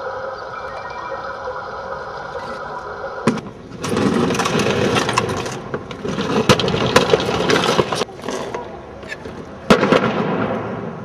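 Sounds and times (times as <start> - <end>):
refrigerator scraping over stone paving: 3.8 - 8.5.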